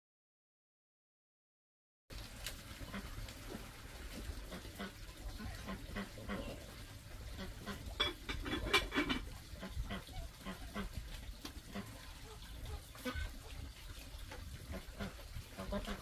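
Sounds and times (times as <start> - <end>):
farm animals calling: 4.4 - 16.0.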